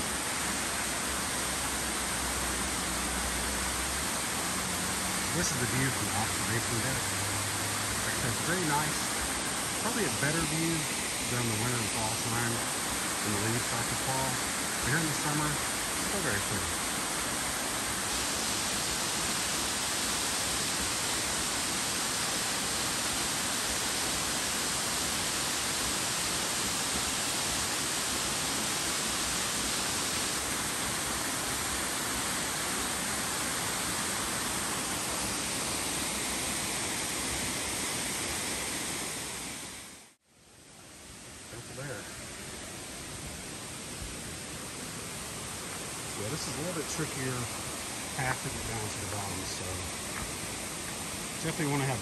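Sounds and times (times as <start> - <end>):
waterfall rushing: 0.0 - 40.2, 41.0 - 52.0.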